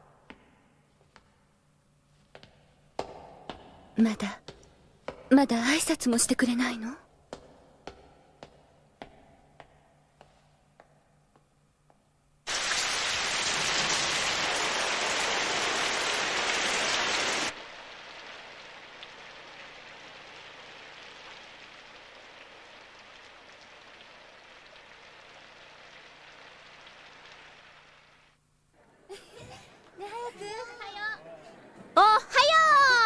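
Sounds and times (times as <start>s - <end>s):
heavy rain: 12.5s - 28.4s.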